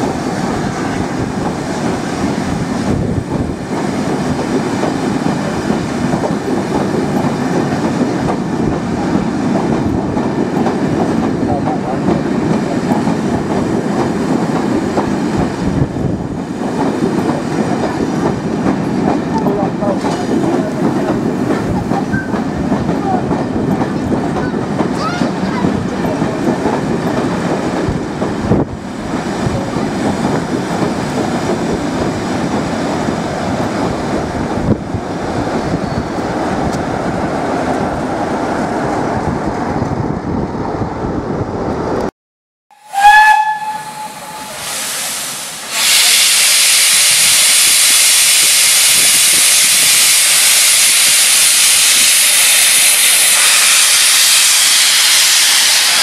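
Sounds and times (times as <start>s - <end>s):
train coaches rumbling on rails: 0.0s - 42.1s, 42.9s - 56.0s
steam whistle blast: 42.8s - 56.0s
hiss of escaping steam: 43.8s - 56.0s.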